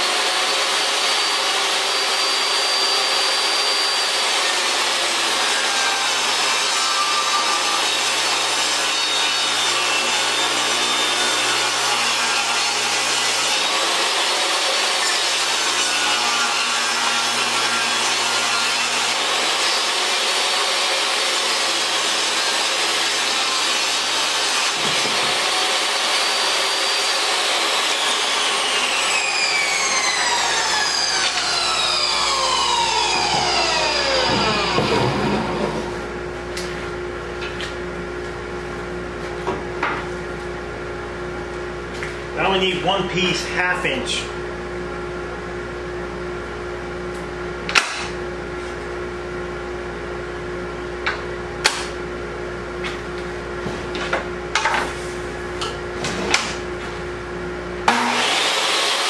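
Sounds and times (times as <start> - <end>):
table saw ripping a board: 0.0 - 36.1, 47.7 - 48.2, 57.8 - 59.0
shop vacuum running: 0.0 - 59.0.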